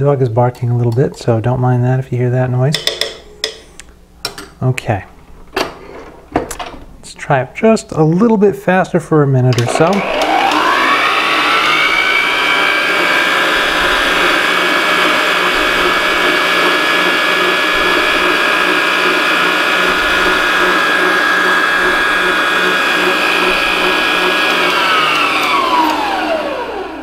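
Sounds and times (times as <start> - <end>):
stand mixer motor whine: 9.6 - 27.0
whisk beating in steel bowl: 12.2 - 26.2.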